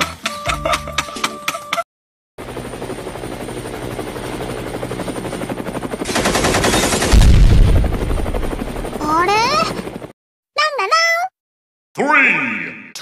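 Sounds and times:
helicopter rotor chopping: 2.4 - 10.1
machine-gun fire: 6.0 - 8.8
deep explosion boom: 7.1 - 8.4.

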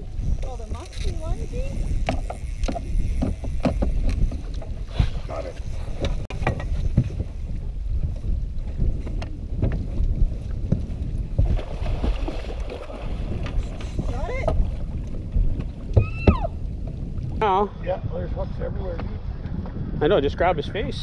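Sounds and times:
water around boat: 0.0 - 21.0
wind rumbling on microphone: 0.0 - 21.0
fish thrashing and splashing: 11.4 - 14.7.

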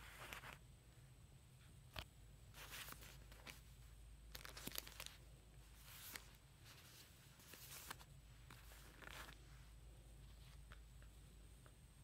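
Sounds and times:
low steady hum: 0.0 - 12.0
yarn bags rustling and crinkling: 2.5 - 9.6.

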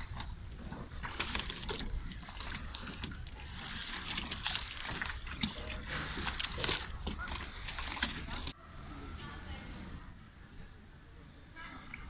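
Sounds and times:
water lapping against boat hulls: 0.0 - 8.6.

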